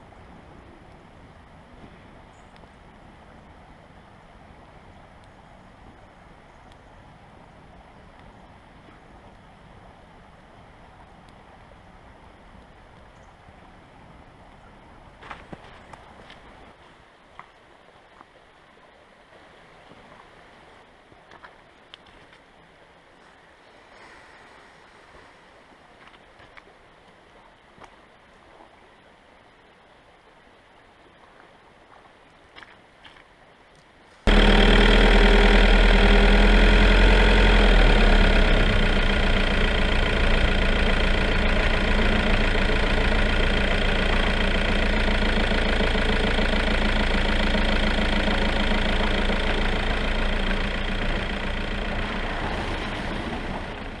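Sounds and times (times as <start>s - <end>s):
vehicle engine driving on dirt: 34.3s - 54.0s.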